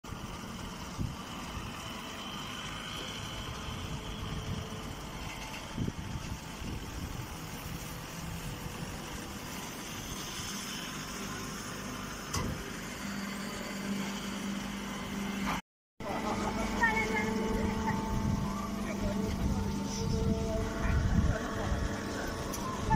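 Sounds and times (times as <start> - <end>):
hay baler running: 0.1 - 22.9
steady low hum: 14.0 - 22.9.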